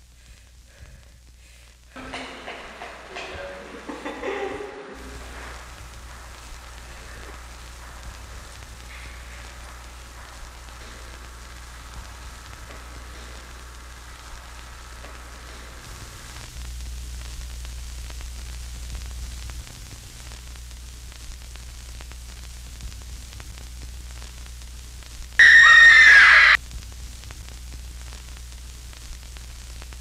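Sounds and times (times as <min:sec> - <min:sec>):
static hiss: 0:00.0 - 0:30.0
loud shrill burst: 0:25.4 - 0:26.6.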